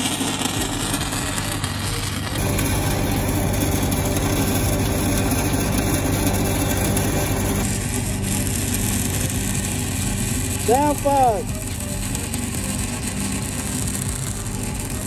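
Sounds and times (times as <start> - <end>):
welding arc crackling and hissing: 0.0 - 15.0
low engine hum: 0.6 - 10.7.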